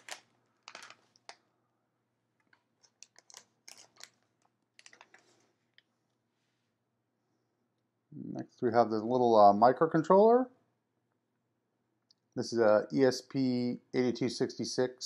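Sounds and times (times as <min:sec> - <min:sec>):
plastic bags crinkling: 0:00.0 - 0:01.4, 0:02.5 - 0:05.8.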